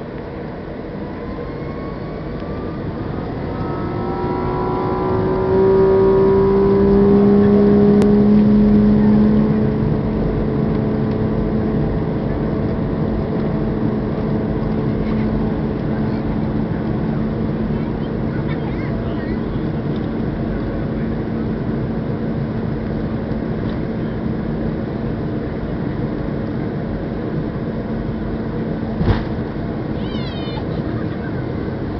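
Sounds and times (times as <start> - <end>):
jet engines spooling up: 0.2 - 9.8.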